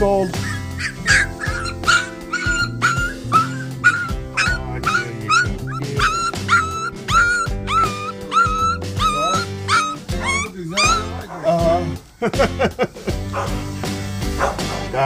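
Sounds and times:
background music: 0.0s - 15.0s
puppy whimpering yelps: 0.3s - 11.5s.

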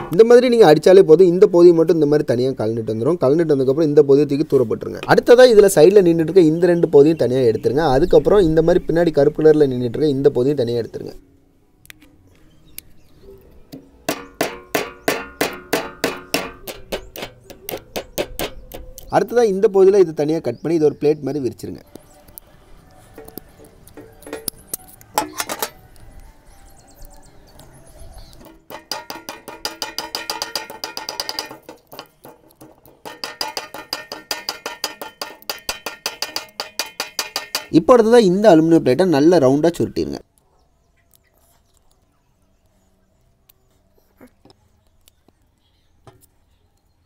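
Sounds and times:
hammer tapping metal rod: 13.8s - 19.1s, 23.2s - 25.8s, 28.4s - 37.8s.

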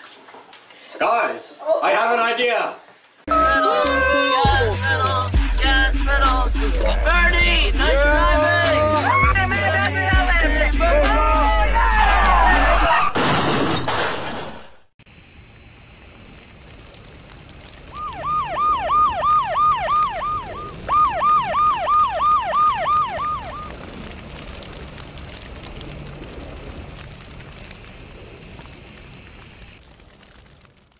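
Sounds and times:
siren yelping: 17.9s - 23.9s.

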